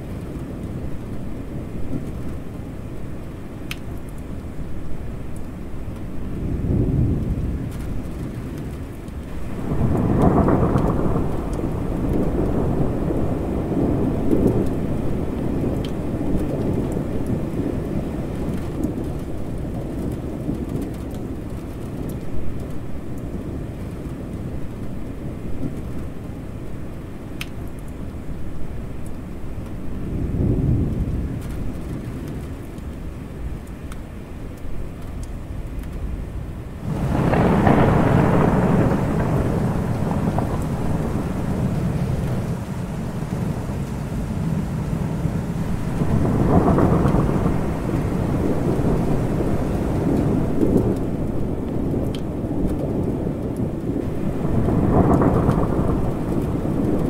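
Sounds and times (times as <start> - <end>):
rain falling: 0.0 - 57.0
low roll of thunder: 4.3 - 26.4, 29.6 - 33.7, 34.8 - 57.0
loud thunderclap: 9.3 - 17.9, 36.8 - 57.0.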